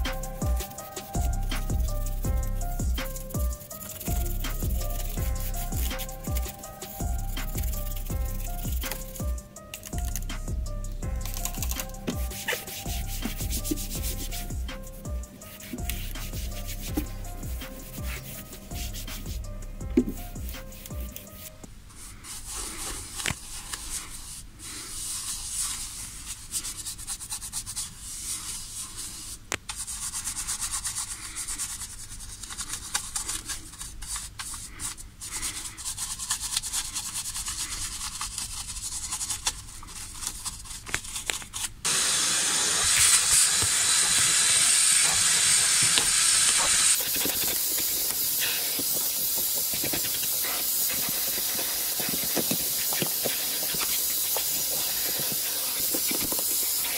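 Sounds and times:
brush scrubbing: 0.0s - 56.9s
vacuum cleaner running: 41.9s - 56.9s.

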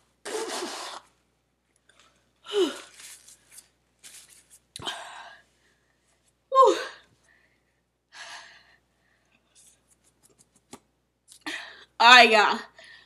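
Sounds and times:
woman blowing her nose: 0.2s - 1.1s.

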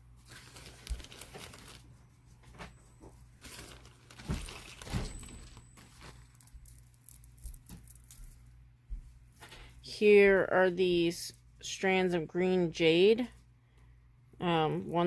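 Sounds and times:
plastic bags rustling: 0.2s - 8.5s.

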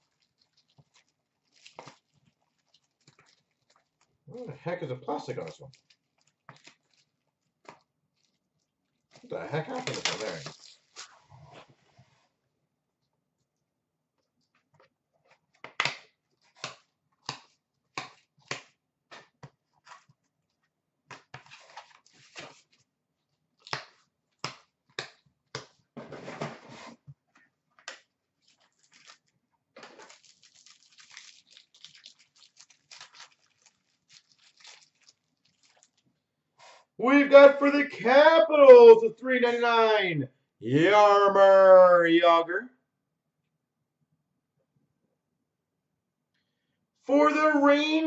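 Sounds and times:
plastic wrapping crinkling: 0.0s - 4.0s, 9.2s - 11.3s, 28.4s - 36.1s.

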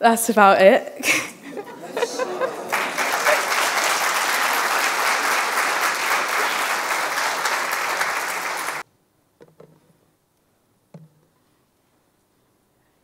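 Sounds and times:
audience applauding: 1.6s - 8.8s.

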